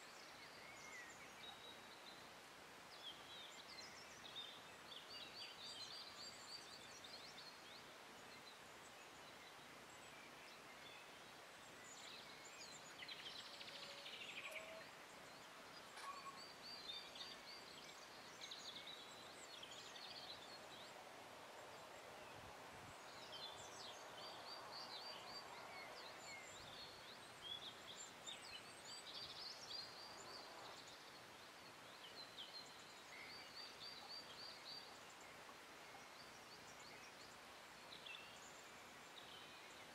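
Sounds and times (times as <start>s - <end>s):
low steady outdoor hiss: 0.0s - 39.9s.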